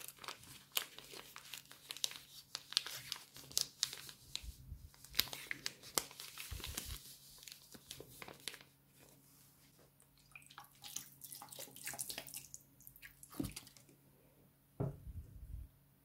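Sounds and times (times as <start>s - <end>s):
plastic bag crinkling: 0.0s - 9.2s
soft thump: 14.8s - 15.4s.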